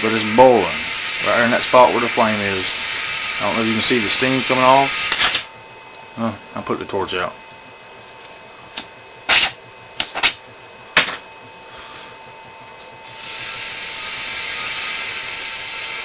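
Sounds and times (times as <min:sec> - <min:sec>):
steady gas hiss: 0:00.0 - 0:05.5, 0:13.0 - 0:16.0.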